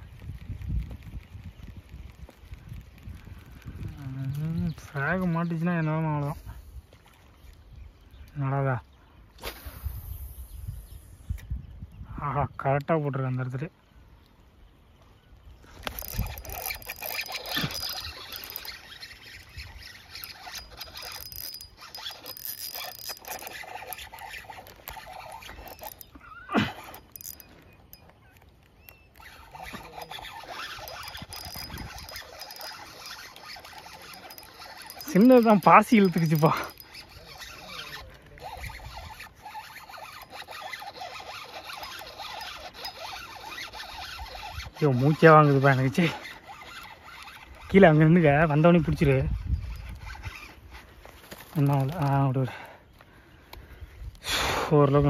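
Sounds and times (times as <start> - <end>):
fishing reel clicking: 15.6 - 52.1.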